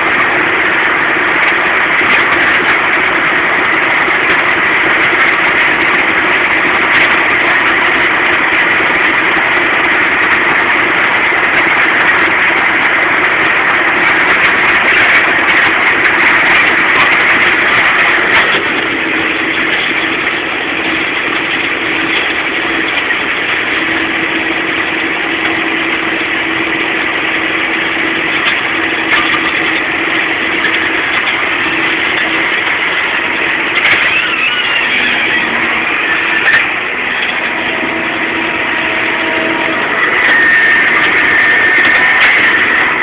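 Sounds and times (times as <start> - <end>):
tractor diesel engine running: 0.0 - 43.0.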